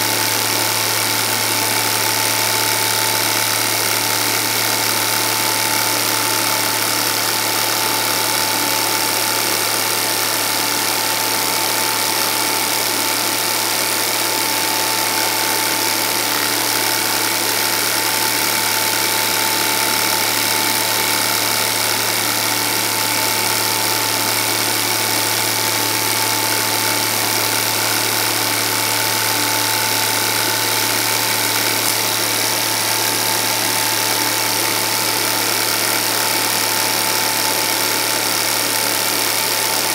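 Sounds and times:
film projector whirring and clattering: 0:00.0 - 0:39.9.

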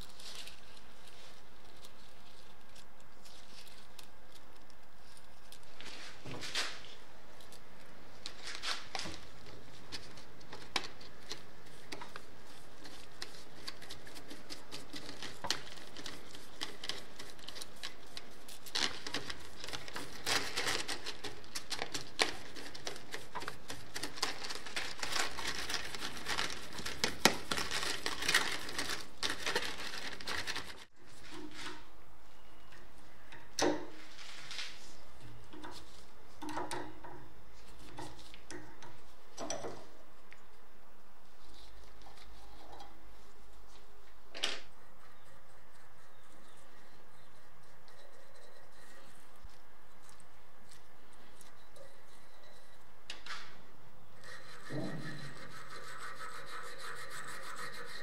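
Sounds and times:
bristle brush scraping: 0:08.3 - 0:32.6, 0:37.5 - 0:39.2, 0:44.7 - 0:53.0, 0:54.0 - 0:58.0.

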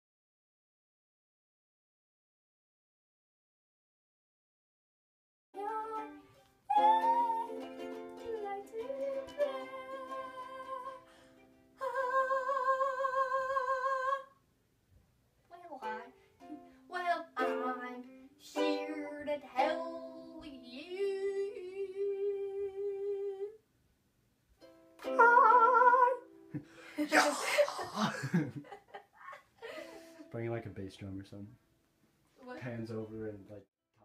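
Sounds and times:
girl singing with vibrato: 0:05.6 - 0:11.1, 0:11.8 - 0:14.4, 0:15.8 - 0:23.6, 0:25.1 - 0:26.3
ukulele: 0:05.6 - 0:14.0, 0:15.8 - 0:23.5, 0:24.6 - 0:27.3.

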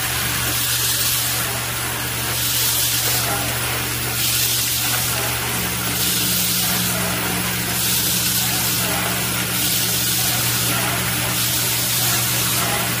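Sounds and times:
machine electric hum: 0:00.0 - 0:13.0
compressed air hiss: 0:04.0 - 0:13.0.

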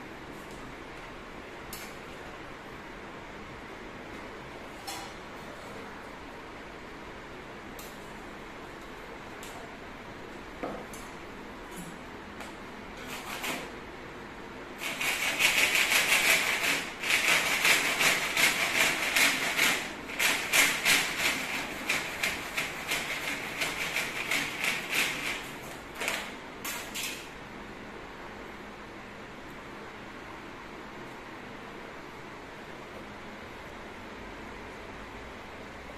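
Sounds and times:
hand saw cutting: 0:14.8 - 0:25.4.

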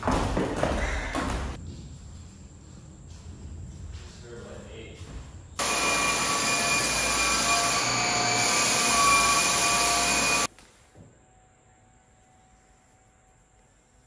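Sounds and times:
floor machine rushing and whining: 0:05.6 - 0:10.5.

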